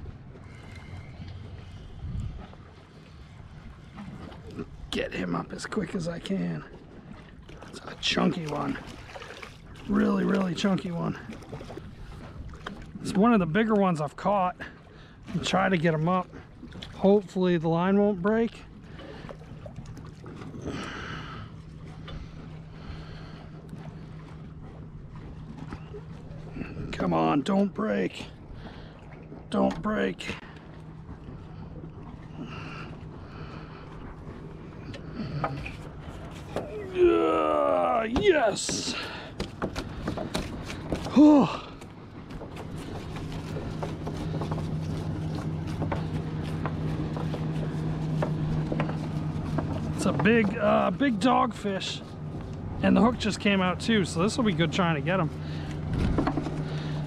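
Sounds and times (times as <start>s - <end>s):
wind rumble: 0.0s - 5.6s, 52.0s - 57.0s
boat motor droning: 0.0s - 57.0s
steady low hum: 18.3s - 57.0s.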